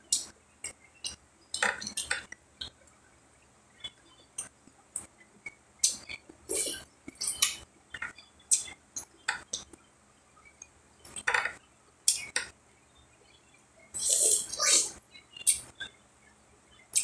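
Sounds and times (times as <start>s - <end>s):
eating clicks and wet smacks: 0.1s - 2.9s, 3.8s - 9.8s, 10.6s - 12.6s, 14.0s - 15.9s.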